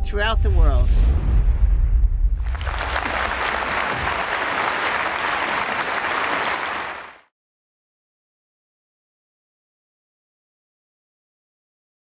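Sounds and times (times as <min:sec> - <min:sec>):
audience applauding: 0:02.4 - 0:07.3.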